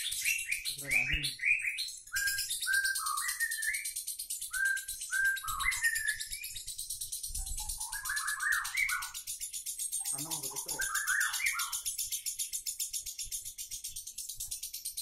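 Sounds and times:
rising bird chirps: 0:04.5 - 0:11.9.

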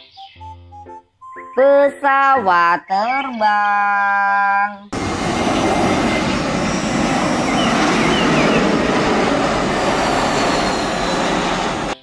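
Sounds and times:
airliner jet noise: 0:05.0 - 0:12.0
faint falling whine: 0:05.0 - 0:12.0.

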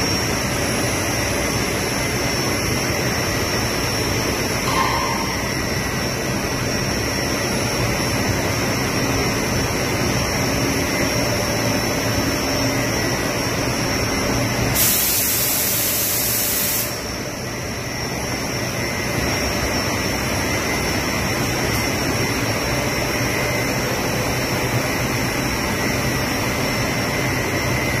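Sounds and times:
machine and blower noise: 0:00.0 - 0:28.0
loud hiss: 0:14.8 - 0:17.0.

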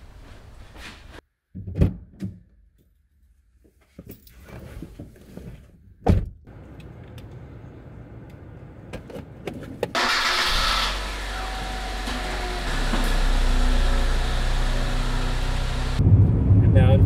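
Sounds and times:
car engine starting and idling: 0:06.5 - 0:16.2.

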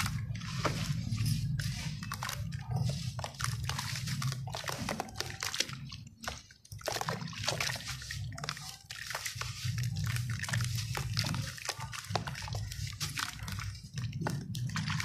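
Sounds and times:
muddy water sloshing: 0:00.0 - 0:15.0
wet block crumbling: 0:02.1 - 0:15.0.

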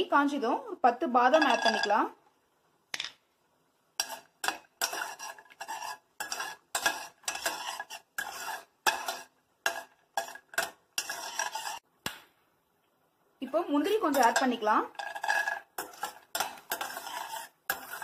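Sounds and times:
light sizzling: 0:00.0 - 0:12.2, 0:12.8 - 0:18.0
spatula scraping a steel pan: 0:04.0 - 0:11.8, 0:13.5 - 0:18.0.

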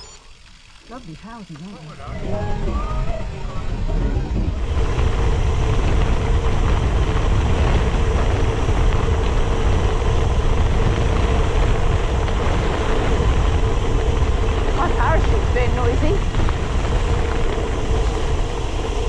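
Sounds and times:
wind buffeting microphone: 0:01.9 - 0:19.0
jacket flapping in wind: 0:04.2 - 0:19.0.

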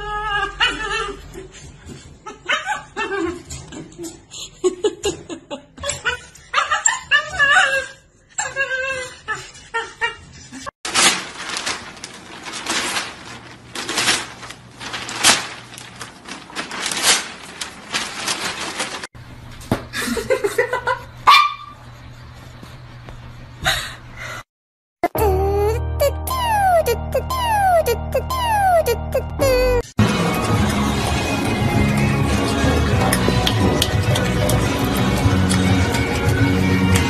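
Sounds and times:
dog whimpering and yipping: 0:00.0 - 0:01.3, 0:05.9 - 0:10.2, 0:25.3 - 0:29.9
newspaper crackling and rustling: 0:10.9 - 0:19.1.

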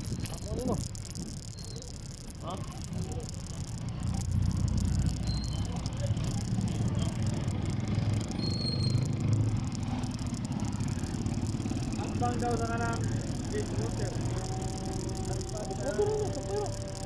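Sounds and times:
wind buffeting the microphone: 0:00.0 - 0:01.6
low rumble of a ride: 0:00.0 - 0:17.0
faint high squeaks: 0:05.2 - 0:05.9.

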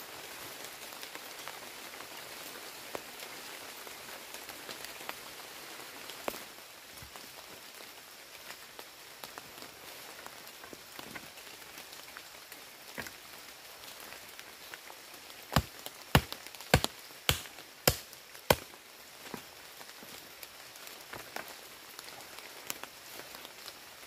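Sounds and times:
steady rain falling: 0:00.0 - 0:24.0
sharp chopping blows: 0:15.6 - 0:18.7.

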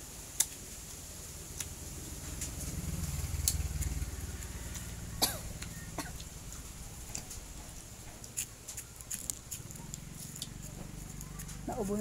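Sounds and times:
passing vehicle engine hum: 0:01.1 - 0:12.0
crunchy mango chewing: 0:08.2 - 0:11.7.

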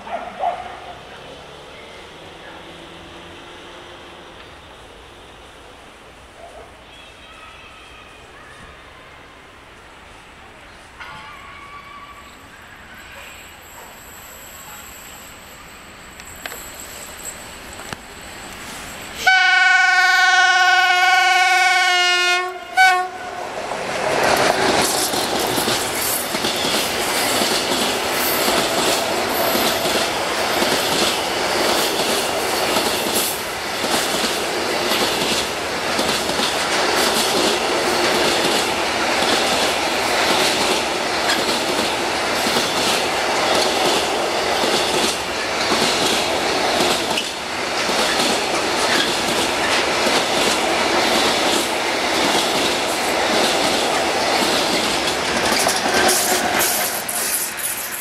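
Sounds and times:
train wheels rumbling on rails: 0:00.0 - 0:06.2, 0:22.4 - 0:58.0
wheels clickety-clack over track: 0:16.1 - 0:19.4, 0:23.9 - 0:58.0.

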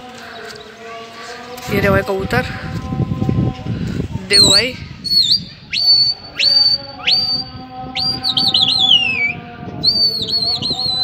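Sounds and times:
person whistling loudly: 0:04.3 - 0:11.0.

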